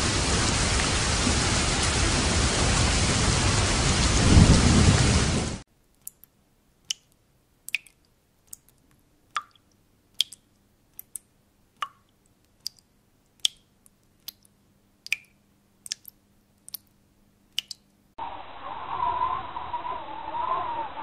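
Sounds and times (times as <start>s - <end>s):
water drops dripping: 5.9s - 18.0s.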